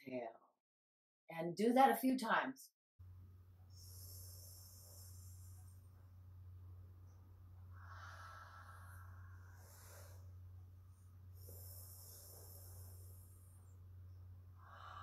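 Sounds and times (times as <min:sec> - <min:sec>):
steady low hum: 0:03.0 - 0:15.0
soft breathing hiss: 0:03.3 - 0:15.0.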